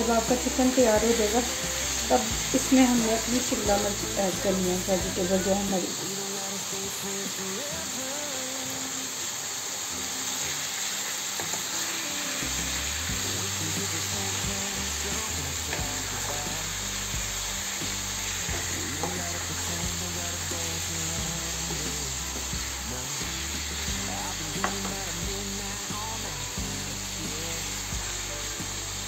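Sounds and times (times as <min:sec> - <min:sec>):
chicken sizzling in a pan: 0:00.0 - 0:29.0
spatula scraping and tapping pan: 0:18.5 - 0:19.4, 0:24.6 - 0:25.0.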